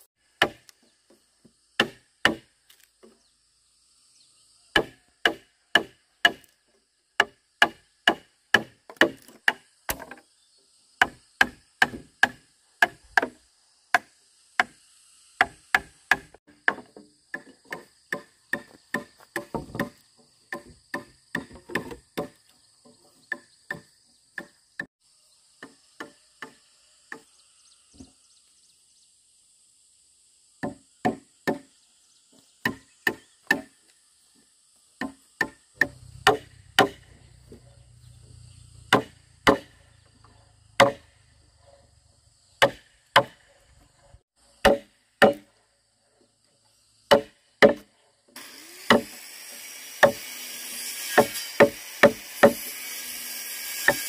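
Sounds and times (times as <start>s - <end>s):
tool striking wood: 0.4s - 1.2s, 1.8s - 2.5s, 4.8s - 6.5s, 7.2s - 10.2s, 11.0s - 13.4s, 15.4s - 24.9s, 30.6s - 31.7s, 32.6s - 33.8s, 35.0s - 37.6s, 38.9s - 39.8s, 40.8s - 41.2s, 42.6s - 43.4s, 44.6s - 45.5s, 47.1s - 47.9s, 48.8s - 49.2s, 50.0s - 50.3s, 51.0s - 52.7s, 53.7s - 54.0s.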